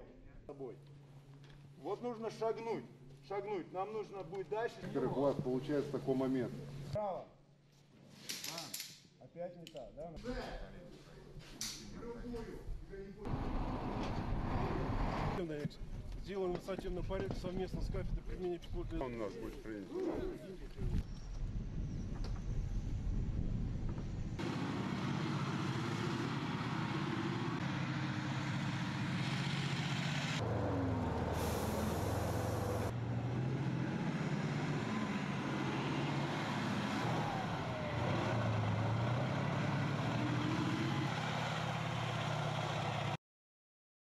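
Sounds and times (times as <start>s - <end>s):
tank engine running: 13.3s - 15.4s, 22.4s - 43.2s.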